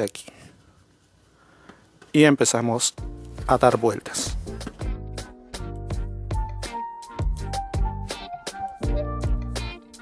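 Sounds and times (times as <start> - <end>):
background music with beat: 3.0 - 10.0.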